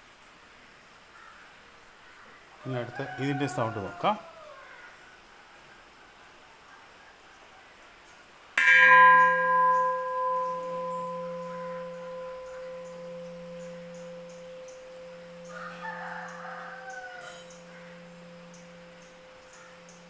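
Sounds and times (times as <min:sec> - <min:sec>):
metal bowl struck and ringing: 0:08.6 - 0:20.0
low pulsing hum: 0:09.5 - 0:20.0.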